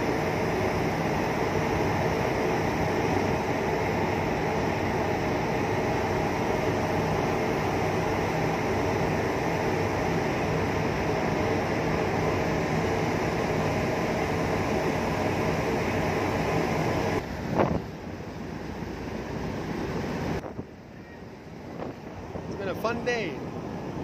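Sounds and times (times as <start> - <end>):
ferry engines droning: 0.0 - 24.0.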